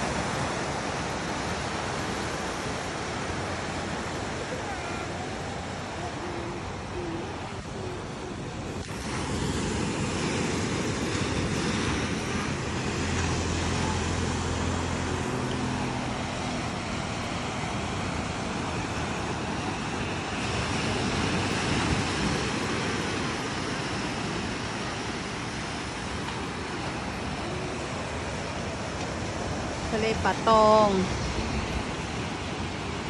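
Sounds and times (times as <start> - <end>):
road traffic: 0.0 - 33.0
surf washing against sea wall: 0.0 - 33.0
engine humming past: 2.5 - 23.6.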